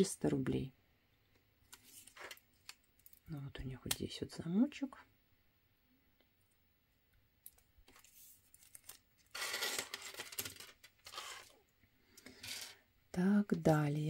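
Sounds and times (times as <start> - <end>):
crinkling and rustling: 1.6 - 3.3, 7.4 - 12.8.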